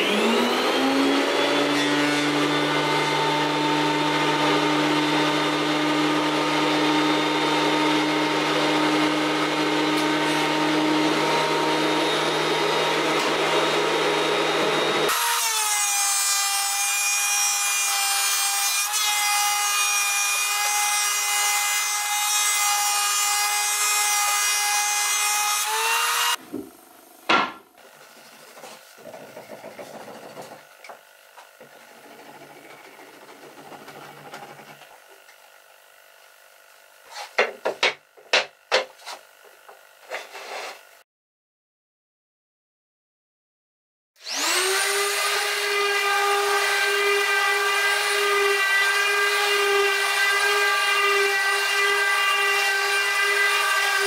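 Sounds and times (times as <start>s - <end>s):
thickness planer running: 0.0s - 15.5s, 23.5s - 40.3s.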